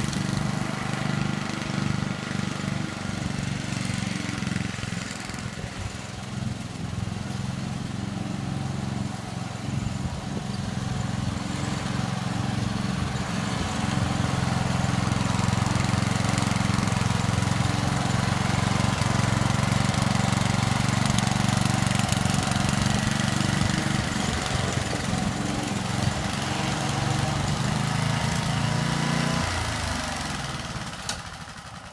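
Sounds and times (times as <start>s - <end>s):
lawn mower engine running: 0.0s - 31.9s.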